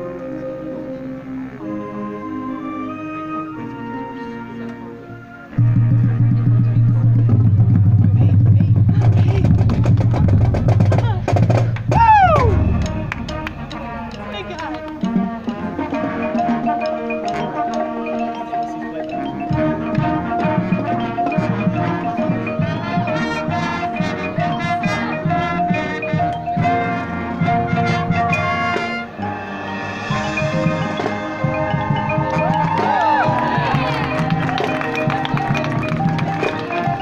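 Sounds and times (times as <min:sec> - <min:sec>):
marching band playing: 0:00.0 - 0:37.0
marimbas and mallet percussion: 0:10.8 - 0:37.0.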